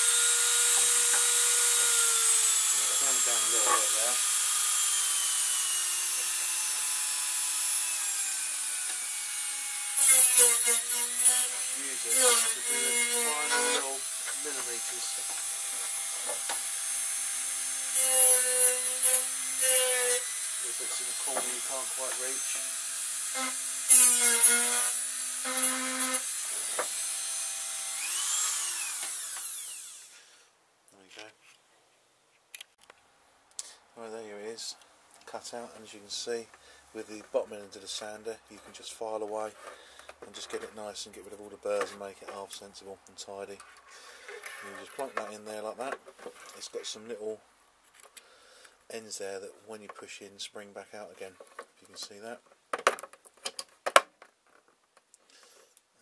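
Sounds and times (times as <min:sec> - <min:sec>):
rotary tool grinding plastic: 0:00.6 - 0:07.0, 0:43.6 - 0:45.4
rotary tool motor whining: 0:21.8 - 0:30.3.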